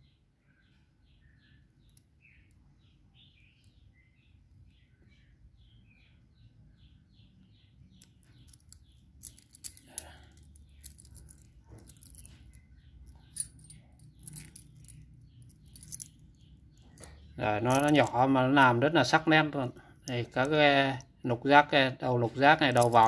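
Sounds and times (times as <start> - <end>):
bird chirping: 0.0 - 23.0
metal wrenches clinking: 8.2 - 18.2, 22.7 - 23.0.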